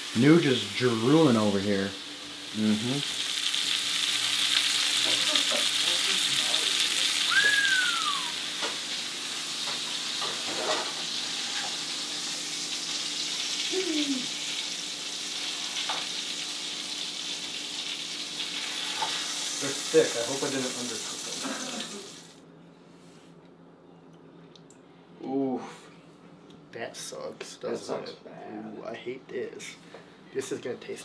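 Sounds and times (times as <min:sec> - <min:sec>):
meat sizzling in frying pan: 0:00.0 - 0:22.4
high falling squeal: 0:07.3 - 0:08.4.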